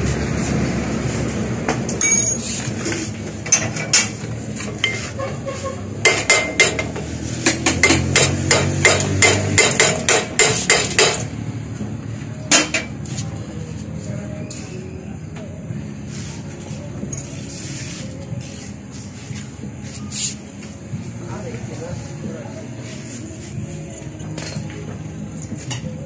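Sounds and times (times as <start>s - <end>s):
hammer striking metal: 6.0s - 11.4s, 12.5s - 12.9s.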